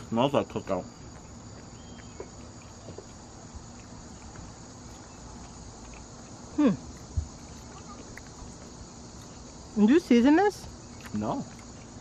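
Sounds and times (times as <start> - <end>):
crickets chirring: 0.0 - 12.0
person humming: 6.6 - 6.9.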